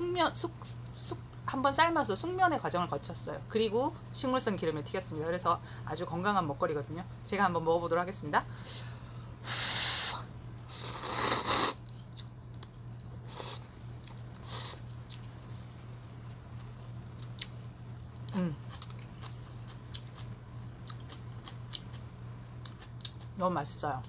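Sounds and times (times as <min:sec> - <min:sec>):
low electrical hum: 0:00.0 - 0:24.0
person slurping noodles: 0:10.7 - 0:11.8
wet chewing: 0:16.0 - 0:23.3.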